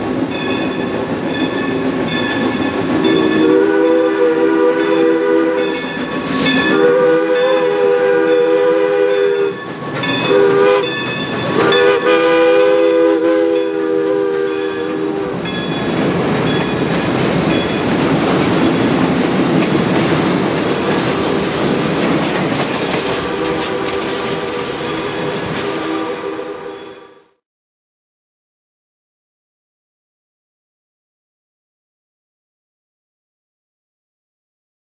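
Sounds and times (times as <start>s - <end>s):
train wheels clattering on rail: 0.0s - 3.8s, 5.6s - 12.9s, 14.6s - 26.2s
steam locomotive whistle blasts: 3.0s - 15.6s, 23.2s - 27.4s.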